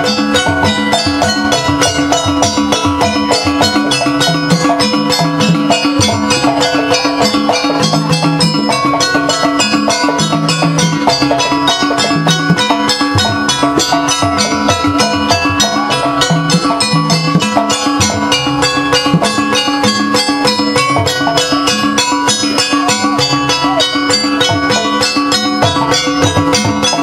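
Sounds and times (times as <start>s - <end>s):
gamelan drums and gongs: 0.0s - 27.0s.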